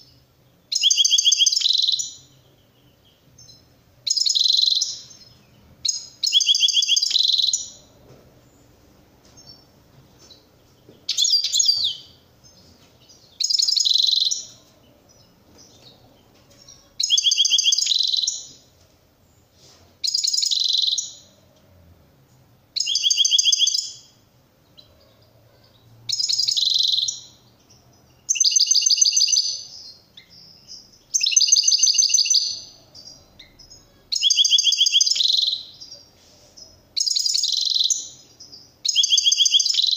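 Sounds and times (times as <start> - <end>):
goldfinch twittering song: 11.1 - 15.8, 16.7 - 18.6, 20.1 - 21.3, 26.1 - 36.0.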